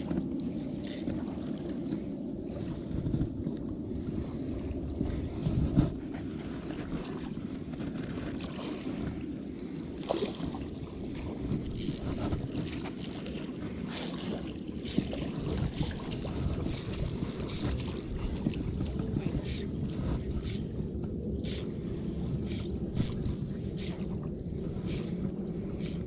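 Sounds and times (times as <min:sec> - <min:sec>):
wind rumble on microphone: 0:00.0 - 0:26.0.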